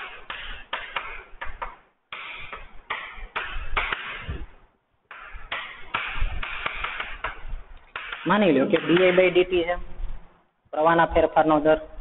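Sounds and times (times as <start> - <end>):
chalk tapping: 0.0 - 4.4, 5.1 - 9.5.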